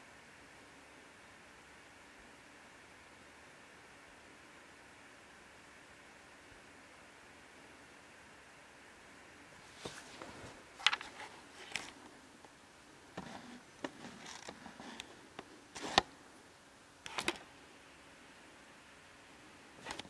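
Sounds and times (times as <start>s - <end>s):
camera handling noise: 9.8s - 12.0s, 15.8s - 16.1s, 17.1s - 17.4s.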